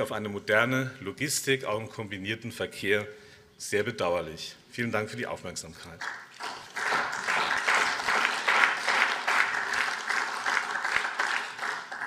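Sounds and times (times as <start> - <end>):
applause: 6.0 - 12.0.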